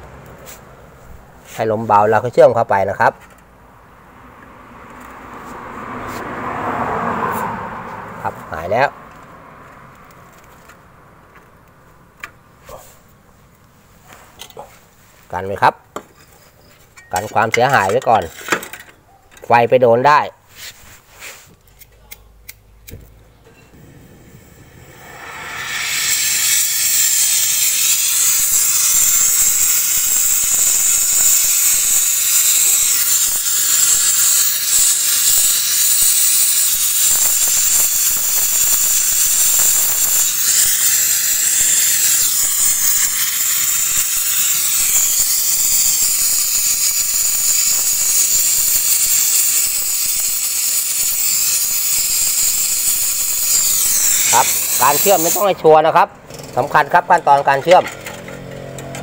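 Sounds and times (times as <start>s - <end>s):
torch flame hissing: 23.8s - 55.6s.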